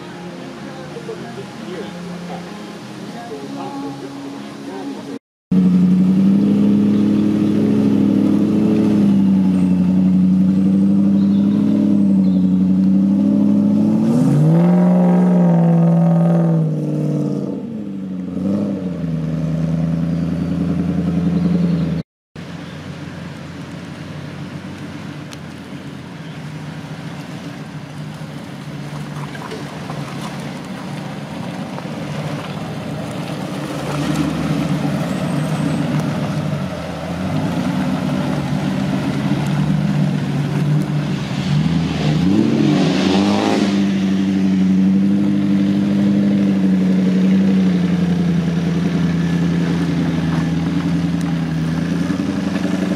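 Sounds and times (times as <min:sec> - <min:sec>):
car engine driving through mud: 0:04.7 - 0:52.9
engine revving up: 0:05.5 - 0:22.0, 0:32.1 - 0:52.9.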